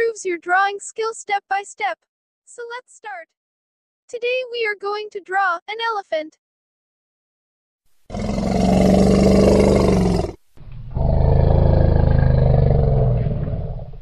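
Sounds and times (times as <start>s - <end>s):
large animal roaring: 8.1s - 14.0s.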